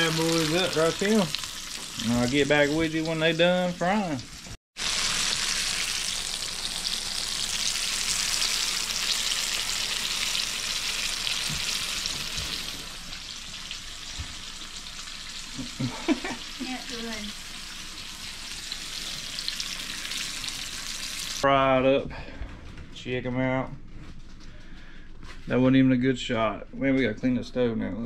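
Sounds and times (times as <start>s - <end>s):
fish sizzling in oil: 0.0s - 21.4s.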